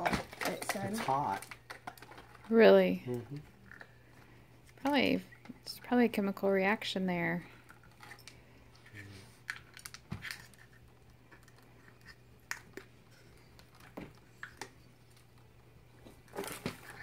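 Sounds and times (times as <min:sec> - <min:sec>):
plastic sheet clicks and crinkles: 0:00.0 - 0:02.5, 0:09.5 - 0:12.9.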